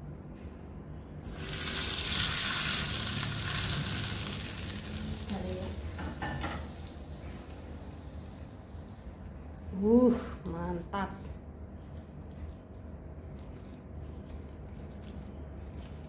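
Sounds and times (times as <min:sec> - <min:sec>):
hot oil sizzling: 0:01.2 - 0:08.8.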